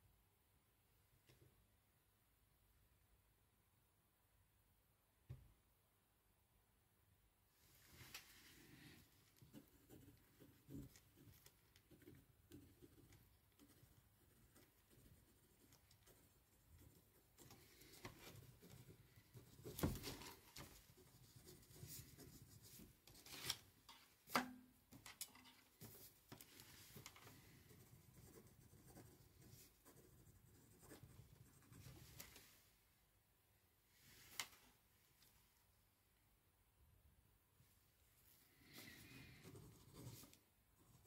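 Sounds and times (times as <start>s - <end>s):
pen scratching on paper: 9.4s - 19.9s, 27.4s - 32.0s.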